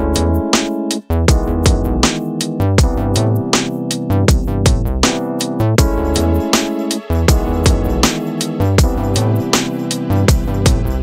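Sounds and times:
drum-machine beat: 0:00.0 - 0:11.0
synthesizer notes: 0:00.0 - 0:11.0.

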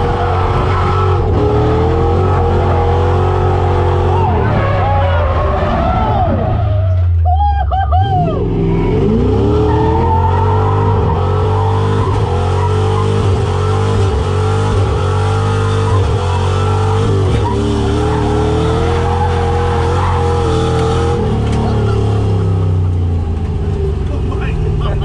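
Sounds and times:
car engine revving high: 0:00.0 - 0:06.8, 0:08.1 - 0:25.0.

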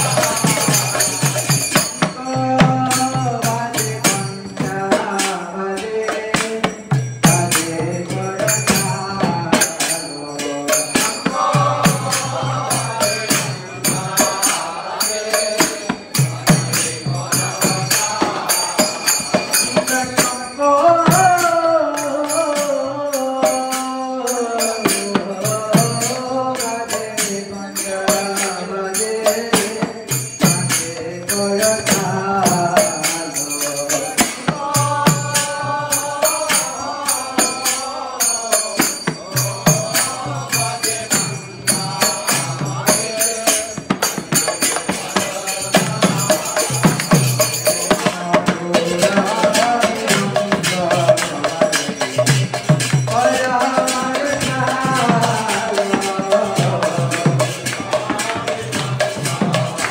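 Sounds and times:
small hand cymbals jingling: 0:00.0 - 0:59.9
hand drum: 0:43.8 - 0:59.9.

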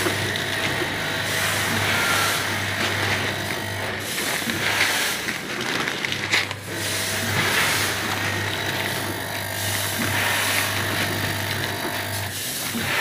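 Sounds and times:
packing machinery humming: 0:00.0 - 0:13.0.

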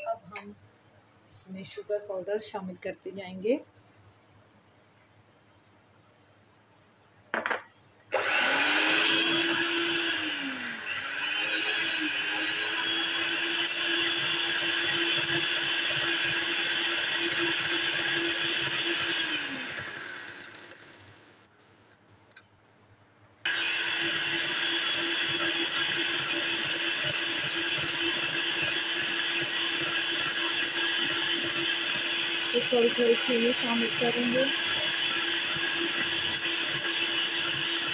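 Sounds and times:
electric hand mixer beating: 0:08.1 - 0:21.3, 0:23.5 - 0:37.9.

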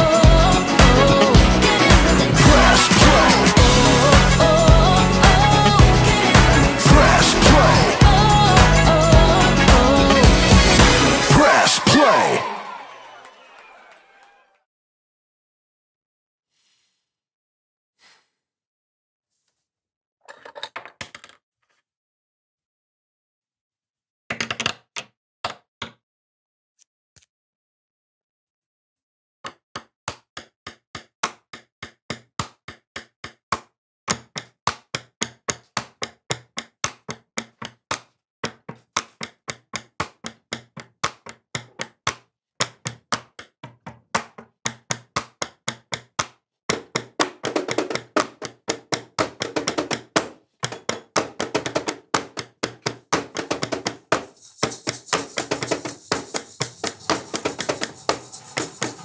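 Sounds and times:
rhythmic tapping beat: 0:00.0 - 0:12.7, 0:51.1 - 0:59.0.

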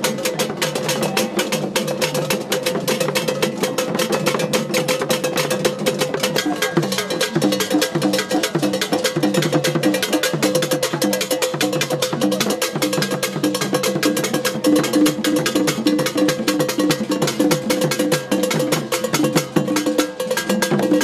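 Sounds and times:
fast sharp drum strikes: 0:00.0 - 0:21.0
hand drums playing: 0:00.0 - 0:21.0.

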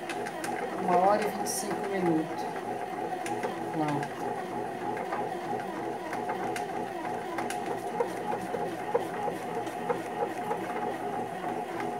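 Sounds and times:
bread maker motor humming: 0:00.0 - 0:11.9.

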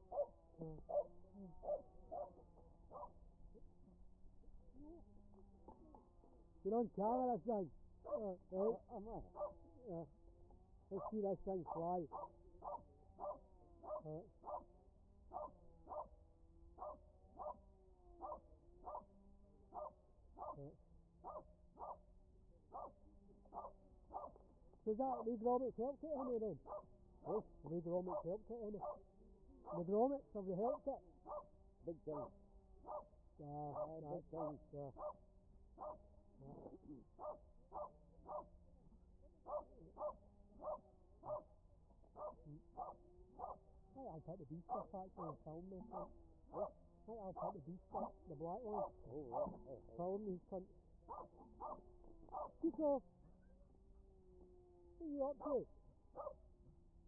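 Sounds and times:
small dog yapping: 0:00.1 - 0:03.2, 0:08.0 - 0:10.0, 0:11.0 - 0:14.7, 0:15.3 - 0:16.1, 0:16.8 - 0:17.6, 0:18.2 - 0:19.1, 0:19.7 - 0:22.0, 0:22.7 - 0:24.4, 0:26.2 - 0:27.5, 0:28.1 - 0:29.0, 0:29.6 - 0:29.9, 0:30.6 - 0:31.5, 0:32.1 - 0:33.1, 0:33.7 - 0:35.2, 0:35.8 - 0:38.6, 0:39.4 - 0:41.5, 0:42.1 - 0:43.6, 0:44.2 - 0:50.0, 0:51.1 - 0:52.8, 0:56.2 - 0:56.4.

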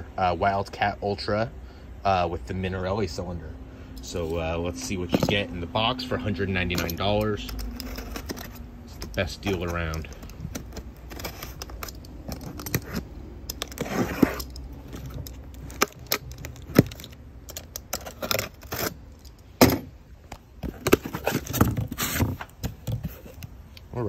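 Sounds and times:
sharp clicks and scrapes: 0:06.6 - 0:23.9
cardboard crackling: 0:06.7 - 0:19.1, 0:19.7 - 0:23.6.

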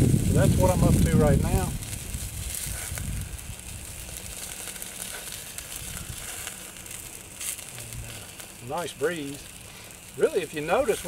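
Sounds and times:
wind rumble on microphone: 0:00.0 - 0:07.0
meat sizzling on grill: 0:00.0 - 0:11.0
wood fire crackling: 0:00.0 - 0:11.0.

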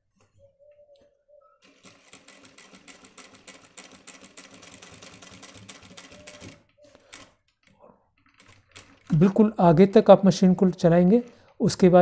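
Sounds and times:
sewing machine stitching: 0:01.6 - 0:09.5.

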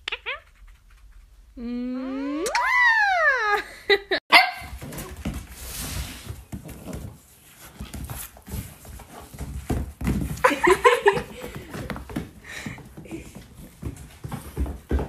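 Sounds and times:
paws and hooves tapping on floor: 0:04.7 - 0:15.0.

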